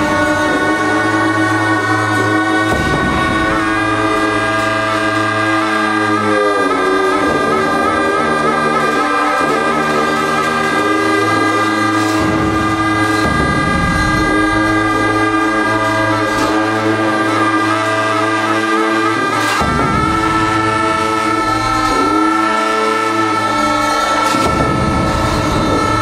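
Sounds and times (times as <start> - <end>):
large frame drum strokes: 0.0 - 5.3, 11.8 - 17.5, 19.3 - 26.0
cymbals: 0.0 - 26.0
long held horn tones: 0.0 - 26.0
low drone: 0.0 - 26.0.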